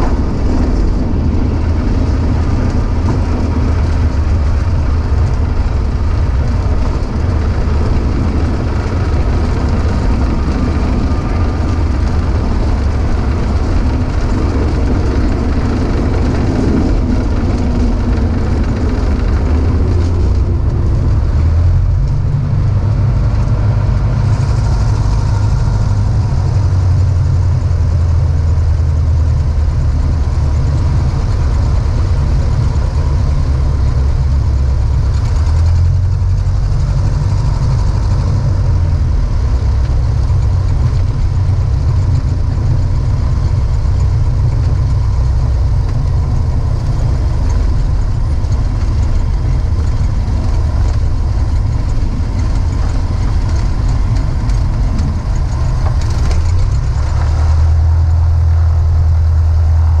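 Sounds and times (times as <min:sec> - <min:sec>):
small plane engine and propeller: 0:00.0 - 1:00.0.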